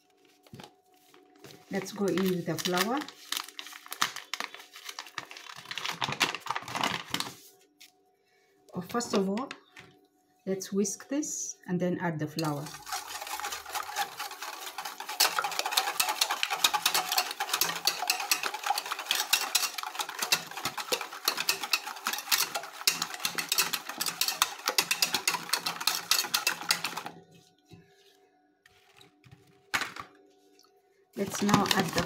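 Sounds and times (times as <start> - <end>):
whisk beating eggs in a bowl: 12.4 - 27.1, 31.2 - 32.0.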